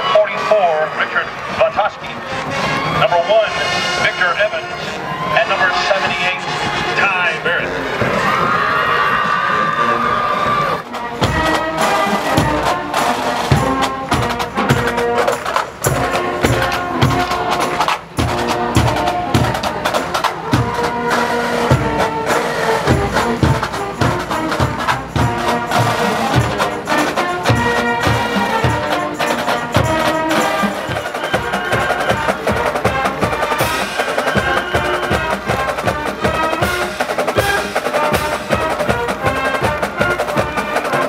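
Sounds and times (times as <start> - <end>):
marching band playing: 0.0 - 41.0
steady drum beat: 10.8 - 41.0.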